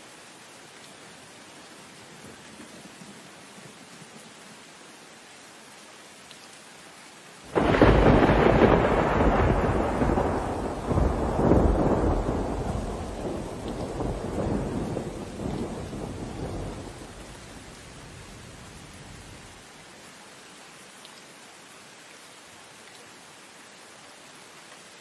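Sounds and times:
rain hissing: 7.3s - 20.7s
thunder clap rolling: 7.5s - 17.2s.

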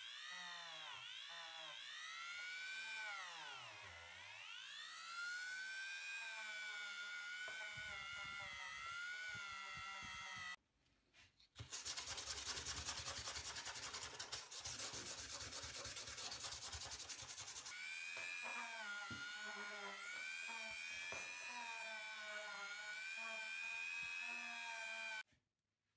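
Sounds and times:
rotary tool whining: 0.0s - 10.6s, 16.4s - 25.2s.

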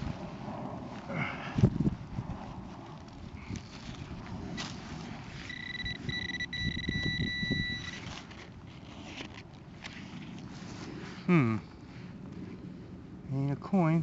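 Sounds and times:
metal detector high tone: 5.5s - 8.0s.

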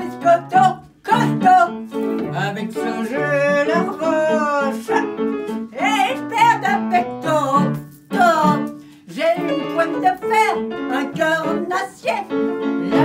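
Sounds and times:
woman singing: 0.0s - 2.0s, 5.8s - 13.0s
piano chords: 0.0s - 13.0s.

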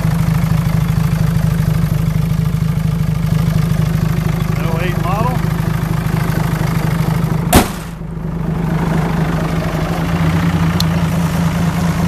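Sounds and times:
diesel engine idling: 0.0s - 12.0s
car hood slamming: 7.5s - 8.0s.

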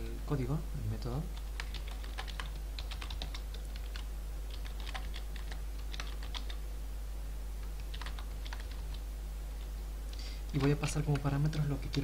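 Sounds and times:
steady low hum: 0.0s - 12.0s
computer keyboard typing: 1.3s - 6.6s, 7.6s - 9.0s, 10.5s - 12.0s.

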